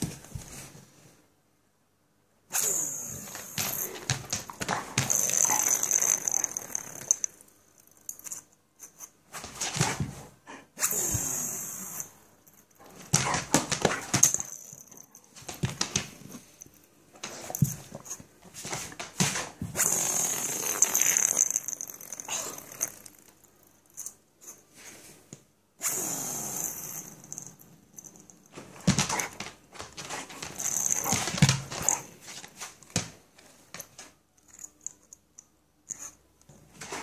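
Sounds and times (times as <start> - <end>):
spinning top whirring: 5.0 - 7.3.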